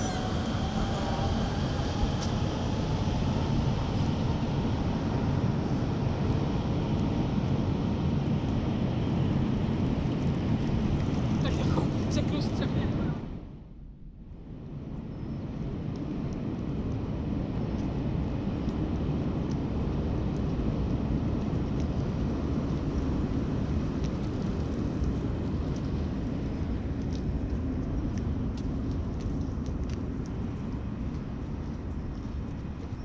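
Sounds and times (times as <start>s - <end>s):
low rumble of outdoor background: 0.0s - 33.0s
faint light ticks: 26.9s - 33.0s.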